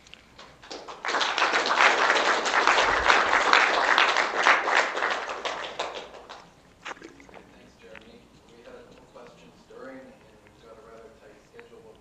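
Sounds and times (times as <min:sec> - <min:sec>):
audience applauding: 0:00.4 - 0:07.5.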